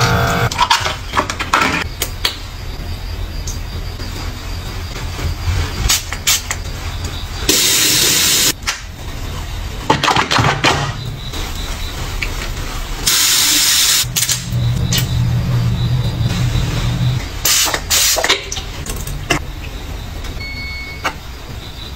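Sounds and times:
hissing sprays: 7.5 - 8.6, 11.4 - 14.1
low hum: 14.0 - 17.5.

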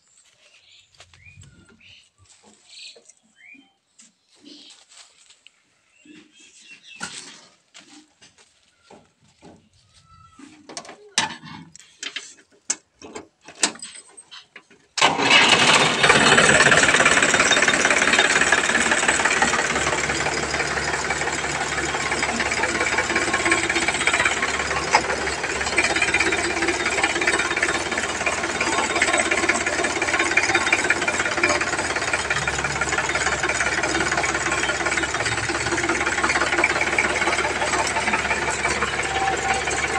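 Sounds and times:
tractor diesel engine running: 15.0 - 39.9.

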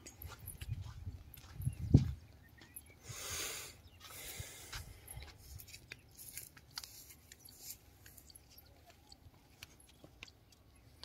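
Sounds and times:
turf rustling and scraping: 4.8 - 11.0.

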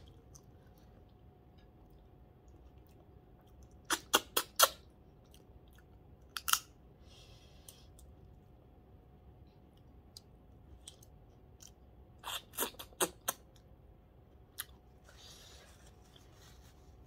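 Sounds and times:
paper tissue rustling: 15.1 - 17.0.

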